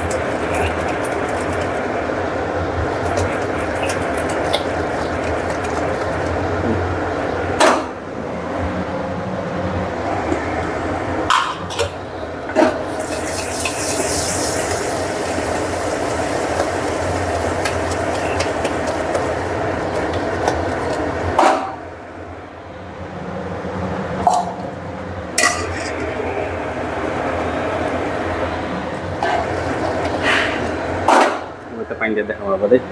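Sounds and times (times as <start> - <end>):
curry sizzling in pot: 0.0 - 1.9, 2.8 - 6.5, 12.7 - 21.4, 29.0 - 31.1.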